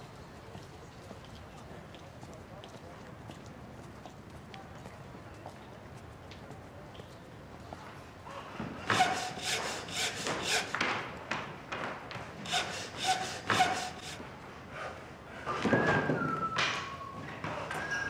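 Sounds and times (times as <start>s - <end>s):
hand saw cutting wood: 8.9s - 11.0s, 12.4s - 14.2s.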